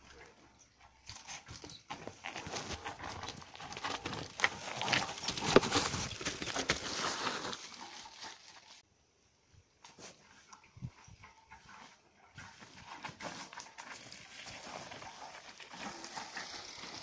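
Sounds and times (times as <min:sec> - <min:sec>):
bike clattering over rocks: 0:01.8 - 0:08.8.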